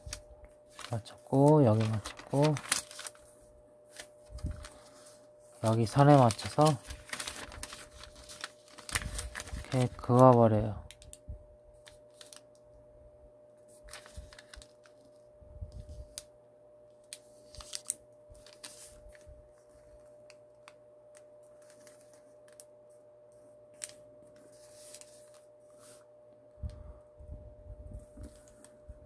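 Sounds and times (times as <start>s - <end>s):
paper crinkling and creasing: 0.0s - 11.2s, 11.8s - 12.5s, 13.7s - 16.3s, 17.1s - 22.8s, 23.8s - 26.0s, 28.1s - 28.8s
electric fan humming: 0.0s - 29.0s.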